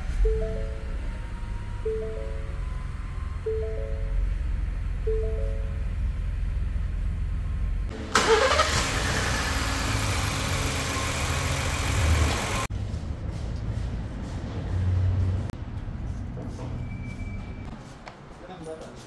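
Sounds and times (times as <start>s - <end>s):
engine idling: 6.0s - 12.7s.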